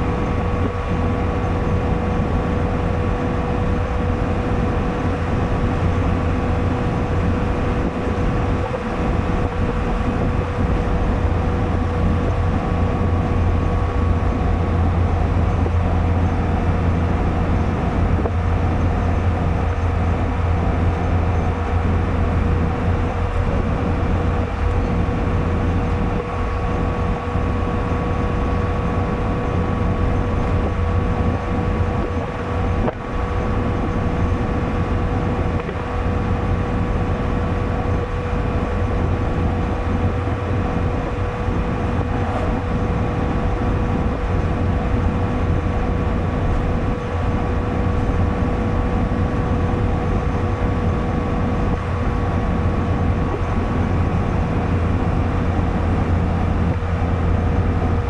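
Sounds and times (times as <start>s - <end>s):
car engine and tyre rumble: 0.0s - 58.0s
steady whine: 0.0s - 58.0s.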